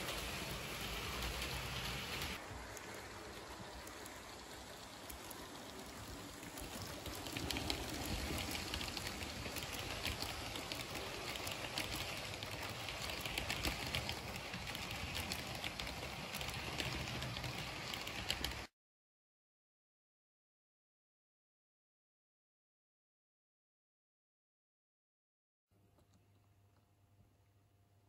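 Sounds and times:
model train rattling on track: 0:00.0 - 0:18.7
wheels clicking over rail joints: 0:00.0 - 0:18.7.

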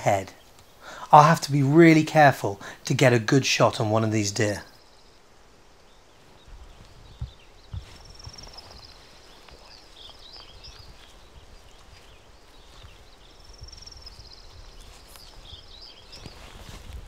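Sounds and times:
outdoor ambience: 0:00.0 - 0:17.0
songbird trilling: 0:05.8 - 0:16.7
soft thumps: 0:06.5 - 0:08.8.

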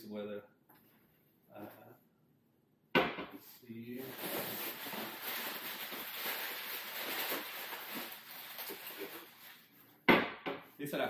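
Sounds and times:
packing paper rustling and crackling: 0:04.0 - 0:09.7.

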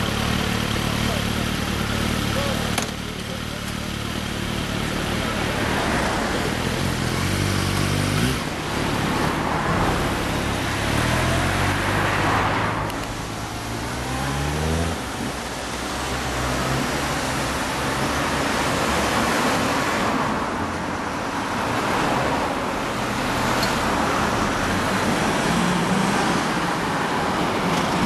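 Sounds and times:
motorcycle accelerating: 0:00.0 - 0:19.8.

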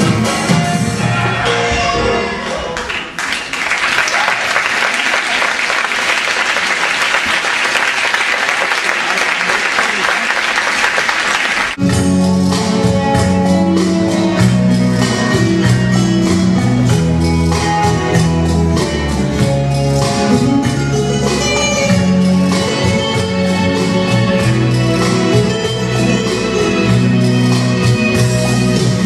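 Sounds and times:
latin dance music: 0:00.0 - 0:03.2, 0:11.1 - 0:29.0
audience applauding: 0:02.6 - 0:11.8.

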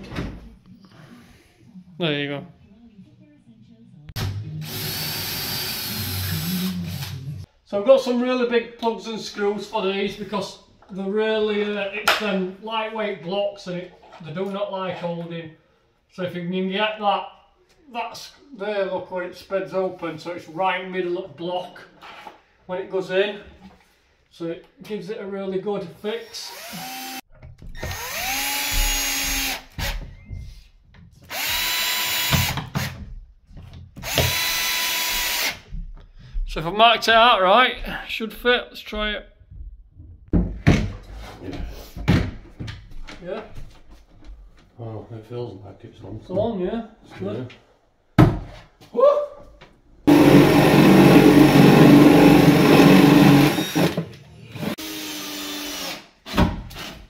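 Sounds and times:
cordless drill driving screws: 0:04.6 - 0:07.2, 0:26.3 - 0:27.2, 0:27.8 - 0:30.0, 0:31.3 - 0:33.0, 0:34.0 - 0:35.6, 0:50.1 - 0:56.1.

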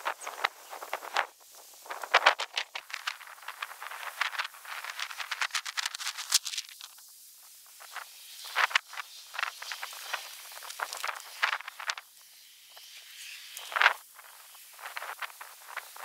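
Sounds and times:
small clicks and rattles: 0:01.9 - 0:07.1, 0:07.8 - 0:12.1.

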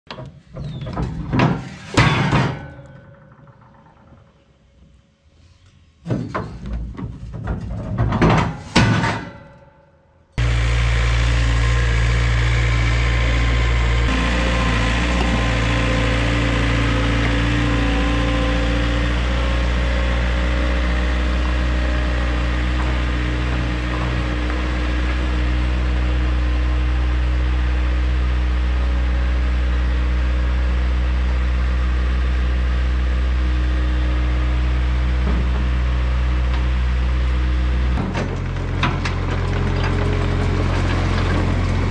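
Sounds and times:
heavy machine engine running: 0:10.4 - 0:41.9.

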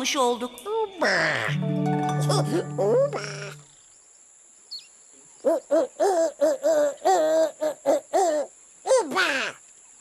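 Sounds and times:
cartoon character non-word calls: 0:02.2 - 0:03.6, 0:08.3 - 0:09.6.

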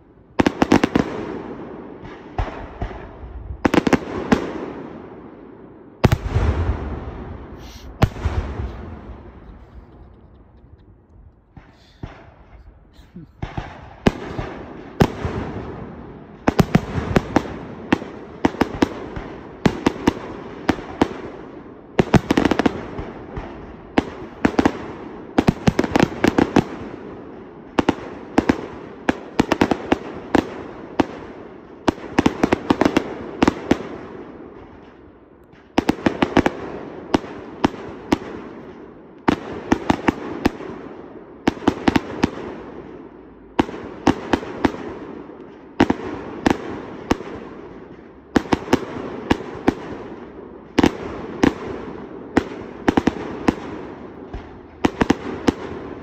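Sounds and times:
echoing rumble: 0:06.3 - 0:14.8
firework shells bursting: 0:07.6 - 0:14.4.

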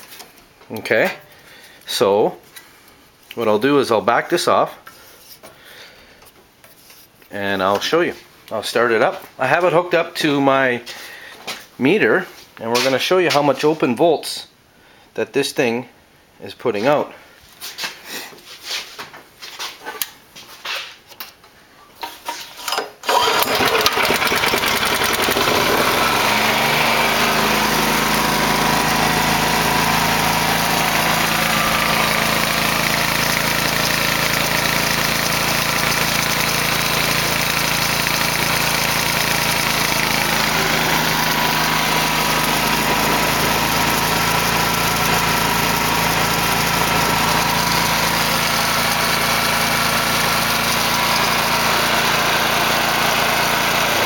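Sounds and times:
engine starting and running: 0:22.7 - 0:54.0.

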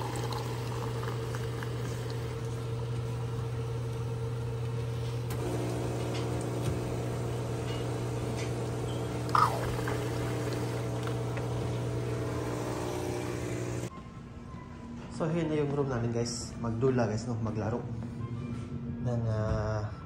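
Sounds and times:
soda pouring into a glass: 0:00.0 - 0:02.8, 0:05.4 - 0:13.9
drink dispenser humming: 0:00.0 - 0:13.9.

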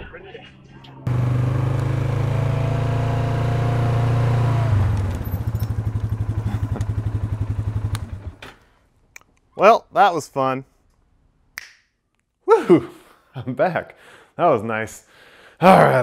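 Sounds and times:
engine revving and idling: 0:01.0 - 0:08.4.

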